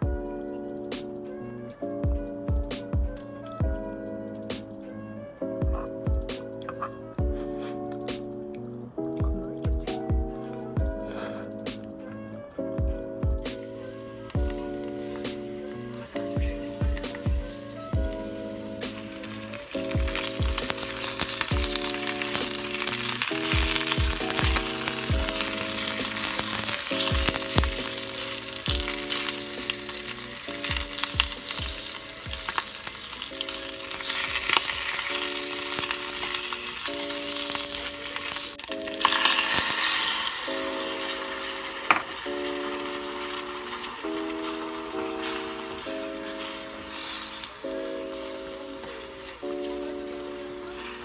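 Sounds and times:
soft background music: 0:00.0 - 0:51.0
food sizzling in oil: 0:13.4 - 0:51.0.

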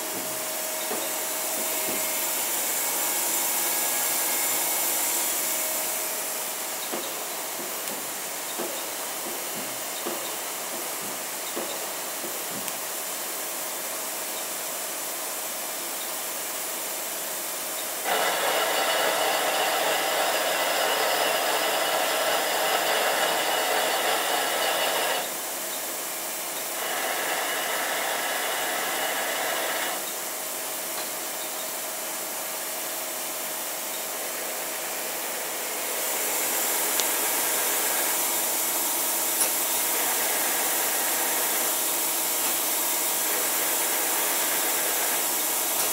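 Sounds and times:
lathe whirring: 0:00.0 - 0:08.4, 0:18.0 - 0:30.9, 0:32.0 - 0:45.9
machine hiss: 0:00.0 - 0:45.9.

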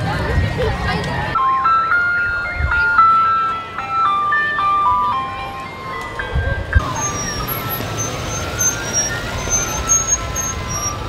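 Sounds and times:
ice cream truck jingle: 0:00.0 - 0:11.0
vehicles rolling past: 0:00.0 - 0:11.0
siren wailing: 0:04.4 - 0:11.0.

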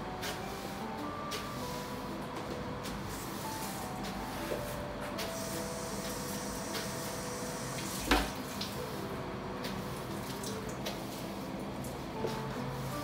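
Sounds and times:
soft background music: 0:00.0 - 0:13.0
tap water running into sink: 0:07.8 - 0:08.7.

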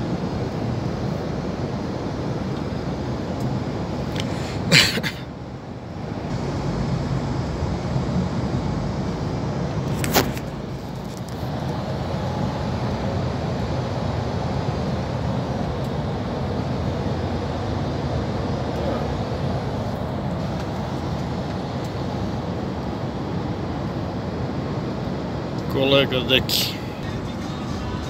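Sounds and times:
truck diesel engine and tyre drone: 0:00.0 - 0:28.0.

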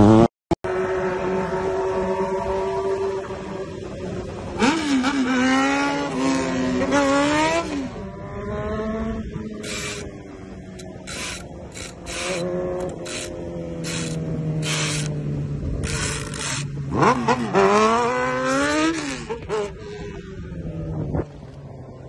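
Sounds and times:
motorcycle engines droning: 0:00.0 - 0:22.0.

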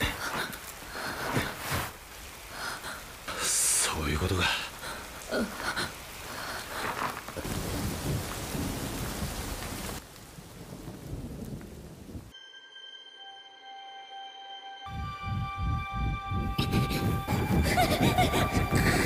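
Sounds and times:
heavy rain falling: 0:00.0 - 0:12.3
low rumble of thunder: 0:07.4 - 0:12.3.

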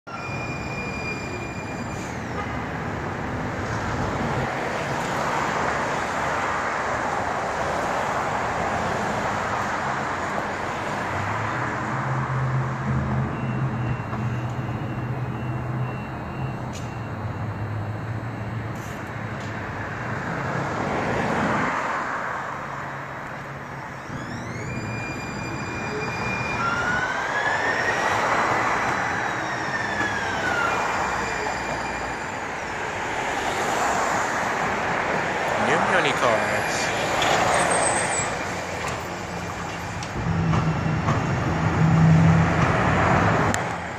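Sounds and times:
light rail train rumbling: 0:22.6 - 0:43.9.

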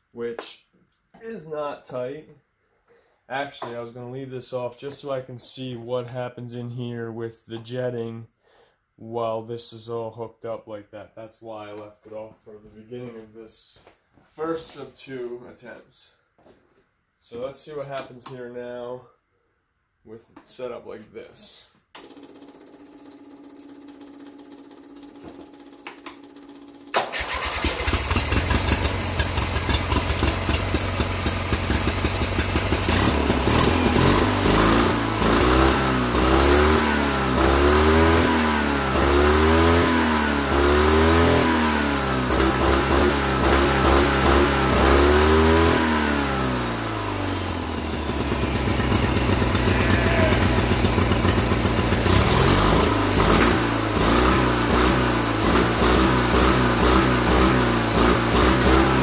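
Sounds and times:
lawnmower engine revving: 0:26.9 - 0:59.0.

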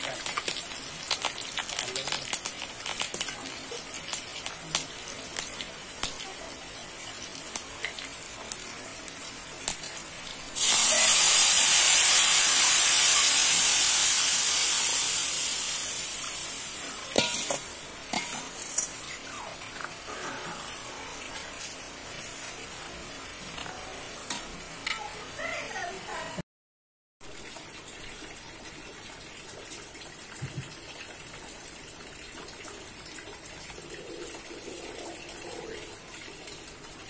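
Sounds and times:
hot oil crackling and popping: 0:00.0 - 0:25.6
loud sizzle: 0:00.0 - 0:26.1
steel ladle clicking on pan: 0:17.2 - 0:18.9.

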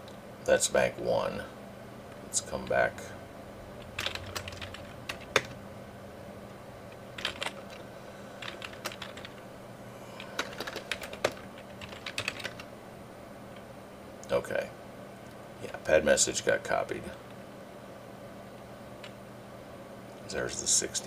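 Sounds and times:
keyboard keys clicking: 0:04.0 - 0:05.6, 0:06.9 - 0:07.8, 0:08.4 - 0:09.4, 0:10.3 - 0:12.7.

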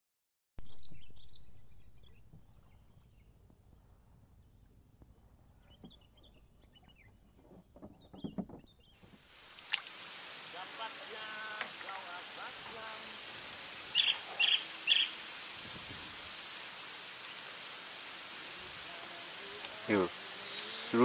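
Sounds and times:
birds chirping: 0:04.0 - 0:09.1, 0:10.4 - 0:21.0
steady high hiss: 0:09.0 - 0:21.0.

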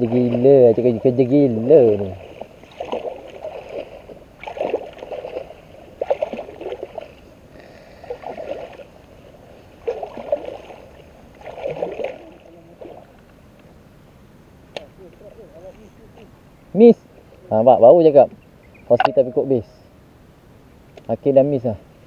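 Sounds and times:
legs sloshing through water: 0:00.0 - 0:13.3.

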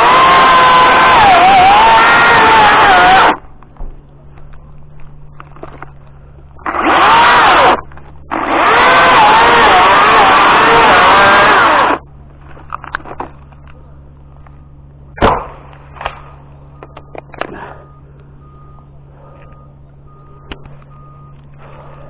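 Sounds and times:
low engine hum: 0:03.4 - 0:06.9, 0:07.5 - 0:08.5, 0:11.7 - 0:22.0
cordless chainsaw: 0:06.6 - 0:12.0
loud thud: 0:15.2 - 0:16.2
faint short beeps: 0:16.6 - 0:21.5.

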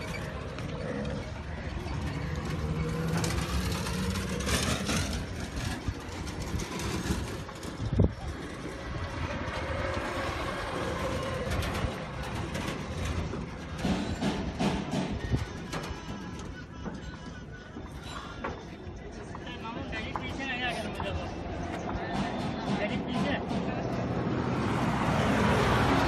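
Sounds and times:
vehicle engine running: 0:00.0 - 0:14.7
street traffic: 0:00.0 - 0:26.0.

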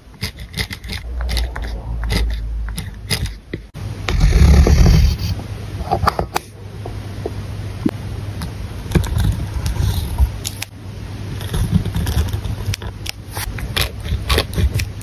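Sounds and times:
pen scratching on paper: 0:00.2 - 0:05.4.

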